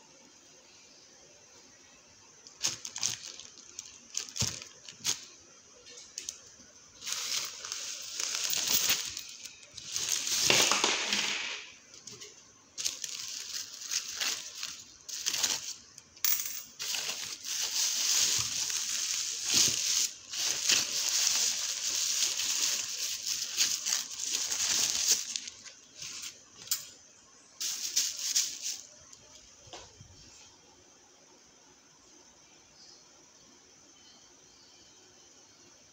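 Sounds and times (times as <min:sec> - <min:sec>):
grocery bags rustling: 0:02.4 - 0:26.8, 0:27.6 - 0:29.0.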